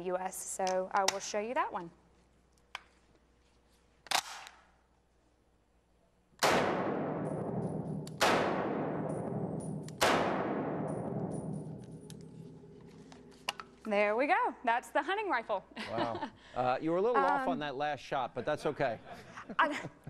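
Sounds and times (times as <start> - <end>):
rifle shots echoing indoors: 4.1 - 4.9, 6.4 - 13.4.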